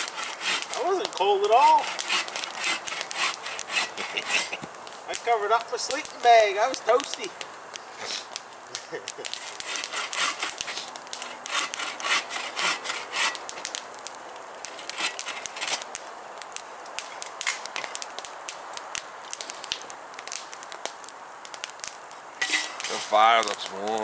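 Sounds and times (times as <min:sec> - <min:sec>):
hand saw cutting wood: 0:00.0 - 0:00.9, 0:01.6 - 0:04.6, 0:09.4 - 0:13.6, 0:14.8 - 0:15.8, 0:22.4 - 0:23.1.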